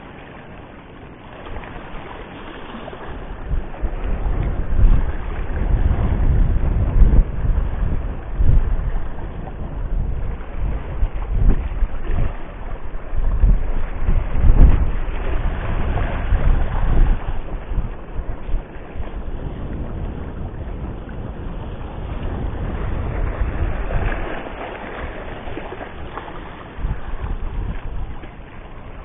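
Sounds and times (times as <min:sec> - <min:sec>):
sea waves against rocks: 0:00.0 - 0:29.0
wind buffeting microphone: 0:01.2 - 0:29.0.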